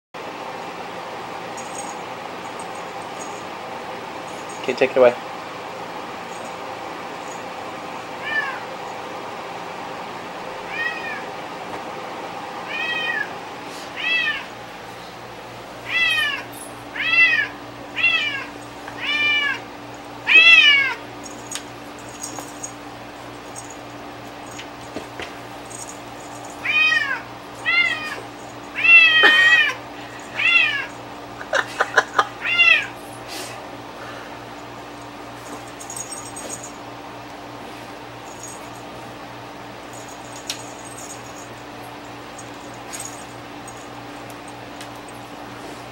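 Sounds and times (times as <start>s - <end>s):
cat meowing: 8.2s - 8.7s, 10.7s - 11.3s, 12.7s - 13.3s, 14.0s - 14.5s, 15.9s - 19.6s, 20.3s - 21.0s, 26.6s - 31.0s, 32.4s - 33.0s.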